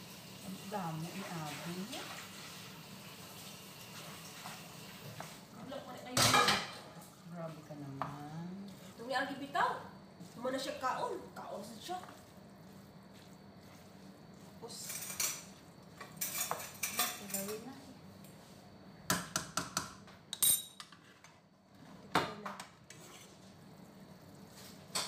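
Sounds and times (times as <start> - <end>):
metal utensils scraping a frying pan: 14.7 - 17.6, 22.9 - 23.4.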